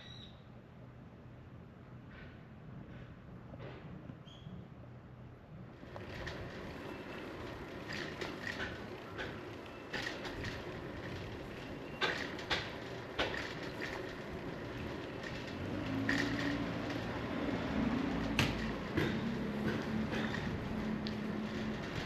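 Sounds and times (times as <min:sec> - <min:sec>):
bicycle rattles and clicks: 0:05.7 - 0:22.0
bicycle riding on pavement: 0:05.7 - 0:22.0
vehicle engine humming: 0:05.7 - 0:22.0.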